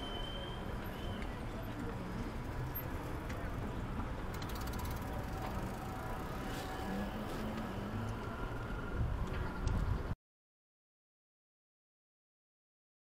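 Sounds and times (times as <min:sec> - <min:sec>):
passing cars and tyres: 0:00.0 - 0:10.2
rapid ticking: 0:04.3 - 0:06.2.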